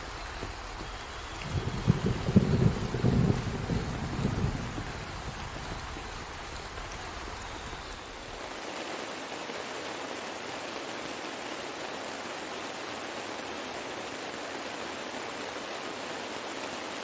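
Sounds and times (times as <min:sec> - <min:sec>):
heavy rain hiss: 0:00.0 - 0:17.0
thunder rumble: 0:01.3 - 0:07.5.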